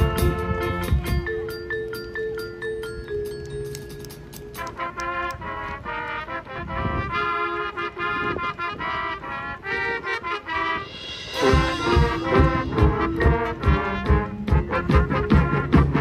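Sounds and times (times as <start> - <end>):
brass playing held chords: 0.0 - 1.6, 4.4 - 16.0
cymbal crash: 10.8 - 13.4
low drum hits: 11.0 - 16.0.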